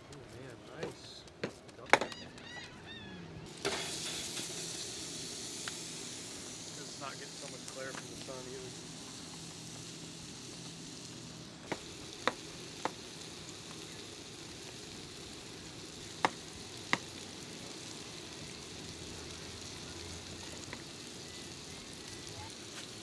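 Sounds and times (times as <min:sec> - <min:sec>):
burger patties sizzling: 0:01.9 - 0:23.0.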